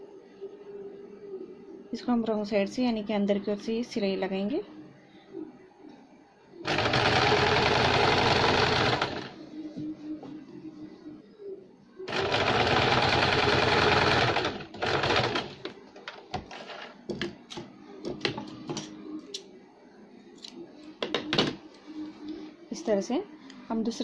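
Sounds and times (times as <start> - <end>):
electric sewing machine running: 6.6 - 9.4, 12.1 - 15.7.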